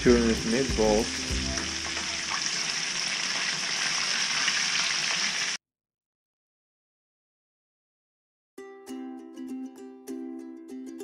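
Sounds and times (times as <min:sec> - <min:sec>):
meatballs sizzling in oil: 0:00.4 - 0:05.6.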